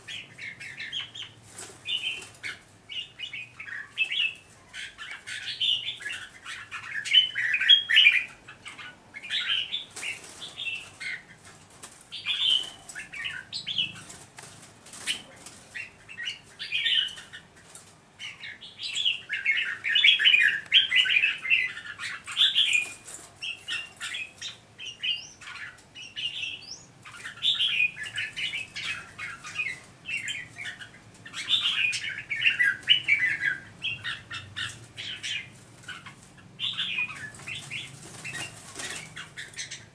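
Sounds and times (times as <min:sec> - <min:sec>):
birds singing chattering phrases: 0:00.0 - 0:39.9.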